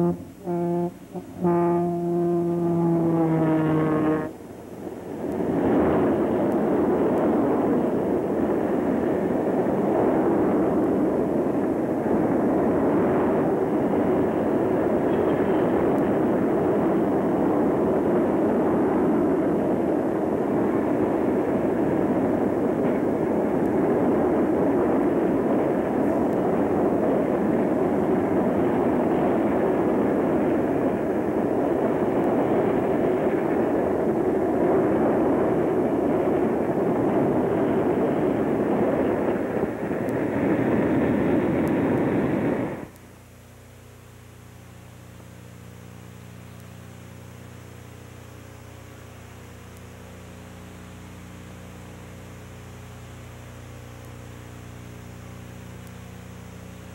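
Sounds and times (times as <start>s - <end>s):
freight train rumbling past: 0.0s - 42.9s
low steady hum: 0.0s - 56.9s.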